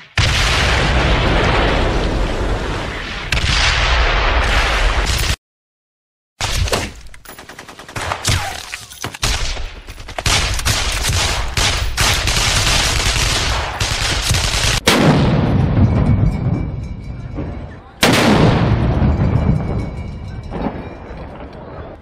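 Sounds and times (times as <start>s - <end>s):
automatic machine-gun fire: 10.2s - 15.1s
deep boom: 14.9s - 22.0s.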